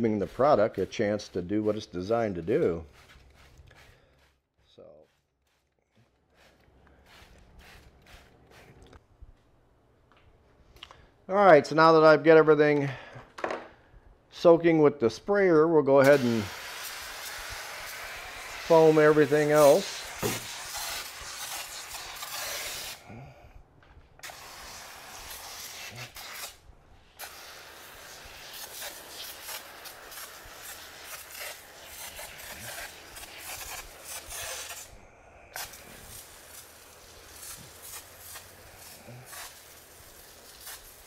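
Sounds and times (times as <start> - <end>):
foam sprayer hissing: 0.0 - 9.0, 16.0 - 23.0, 24.2 - 26.6, 27.2 - 41.0.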